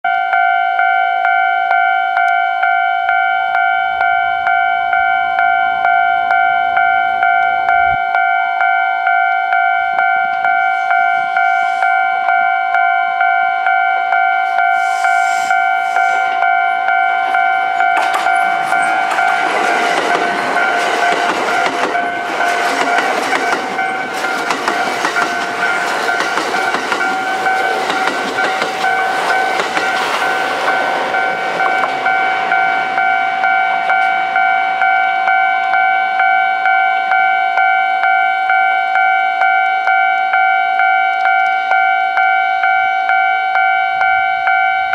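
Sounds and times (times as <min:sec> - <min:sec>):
level-crossing warning bell: 0:00.0 - 0:44.9
train wheels clattering over rails: 0:18.0 - 0:33.0.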